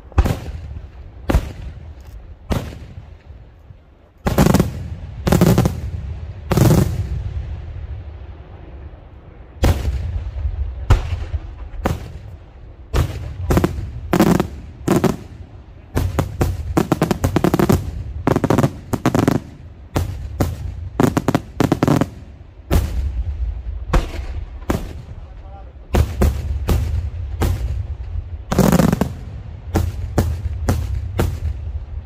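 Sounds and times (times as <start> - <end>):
fireworks bursting: 0.0 - 3.4, 4.2 - 7.9, 9.6 - 32.0
low rumbling echoes: 0.0 - 32.0
crackling firework reports: 4.2 - 32.0.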